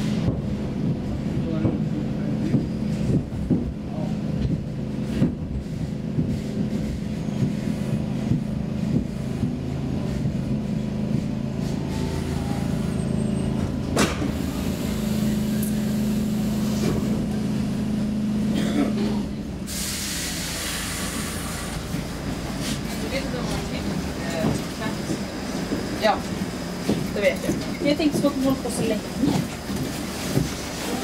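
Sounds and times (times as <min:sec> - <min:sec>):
metro train motor hum: 0:00.0 - 0:31.0.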